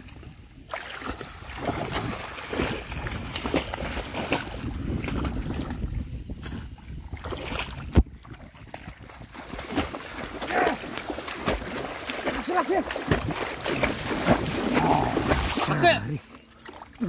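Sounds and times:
wind on microphone: 0.0 - 10.0
feet splashing through water: 0.0 - 17.0.

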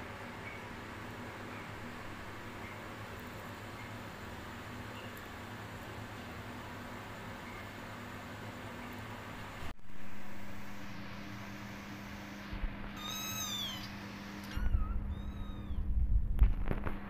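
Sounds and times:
steady low hum: 0.0 - 17.0
kitten meowing: 13.0 - 15.9
low rumbling: 14.6 - 17.0.

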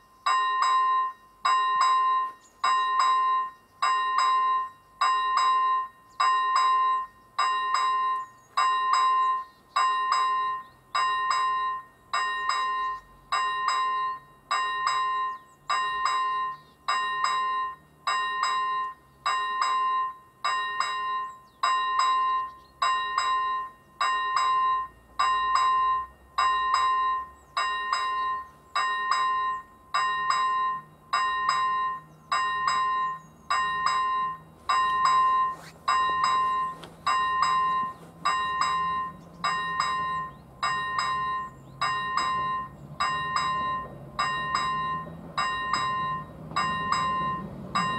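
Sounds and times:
level crossing bell ringing: 0.0 - 47.9.

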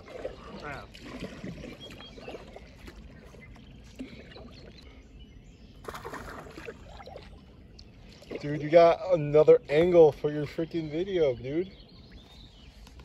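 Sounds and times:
fish splashing in water: 0.0 - 4.8, 5.8 - 8.6.

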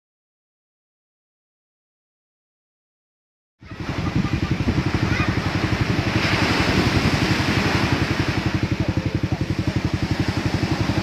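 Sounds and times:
surf breaking on shore: 3.6 - 11.0
engine idling: 3.7 - 11.0.

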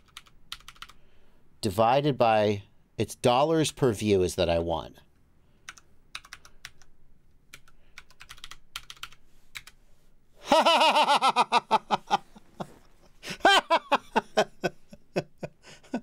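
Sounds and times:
computer keyboard typing: 0.0 - 1.0, 5.6 - 6.9, 7.5 - 9.8
man laughing: 10.4 - 16.0.

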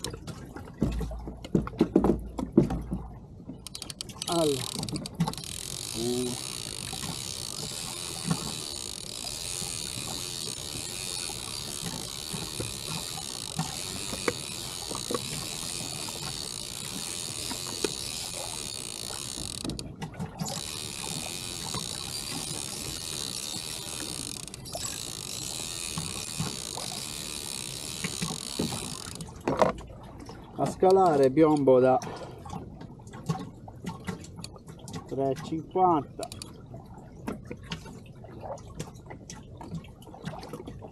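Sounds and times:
fishing reel whirring: 3.7 - 19.8, 20.4 - 29.7.

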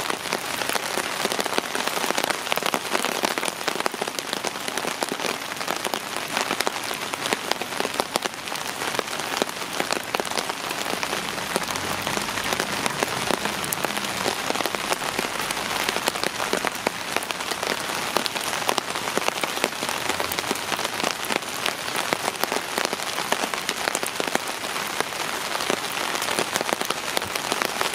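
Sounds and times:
heavy rain on a pond: 0.0 - 27.9.

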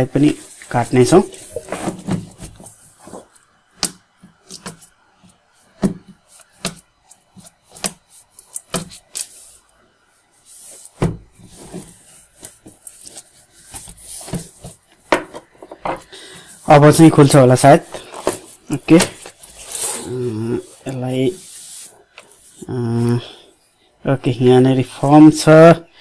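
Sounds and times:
plastic crinkling and crackling: 0.2 - 9.6.

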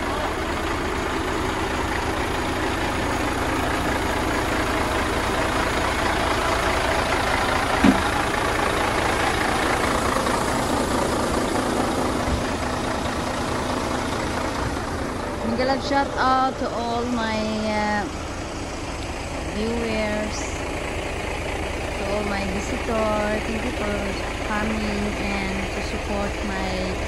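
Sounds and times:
diesel engine running: 0.0 - 27.0
short knock: 7.8 - 8.1.

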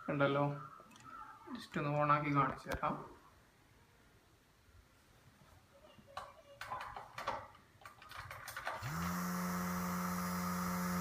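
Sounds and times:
small fan whirring: 8.8 - 11.0.

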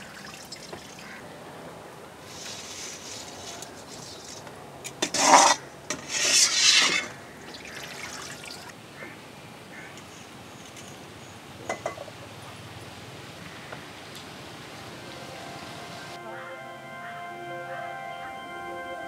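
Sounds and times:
ladle scraping: 2.2 - 8.7.

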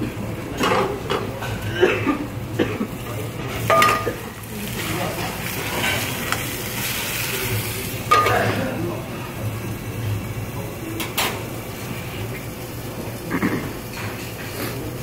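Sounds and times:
chicken sizzling in a frying pan: 0.2 - 15.0
metal tongs scraping a pan: 3.5 - 8.6.

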